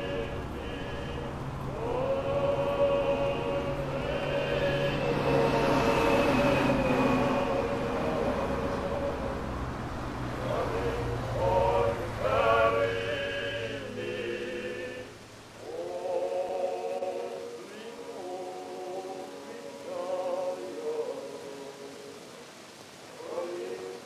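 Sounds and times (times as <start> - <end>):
low rumble: 0.0 - 14.0
vocal group singing a cappella: 0.0 - 24.0.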